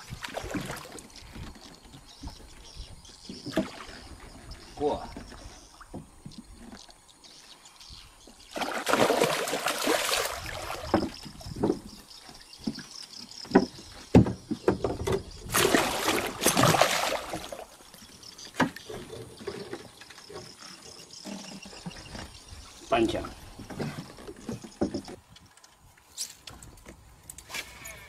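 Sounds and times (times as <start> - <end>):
fish splashing at surface: 8.6 - 11.0, 15.5 - 17.6
knocks on boat: 13.4 - 15.3.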